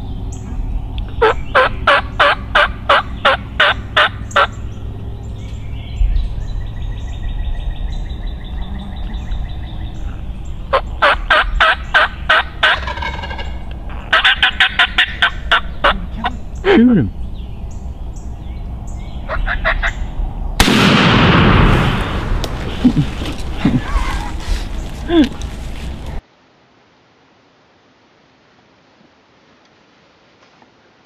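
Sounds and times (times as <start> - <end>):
steady low rumble: 0.0 - 26.2
bird calling sharp repeated notes: 10.7 - 16.7.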